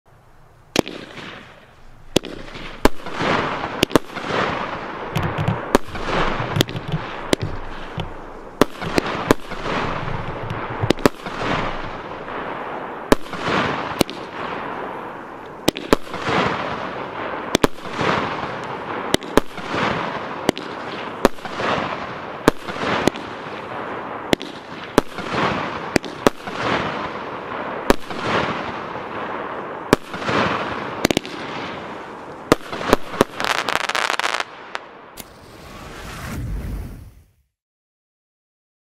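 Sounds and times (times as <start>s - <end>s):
firework launch thumps and bursts: 0.8s - 12.0s, 35.2s - 37.3s
hiss of firework stars: 35.2s - 37.4s.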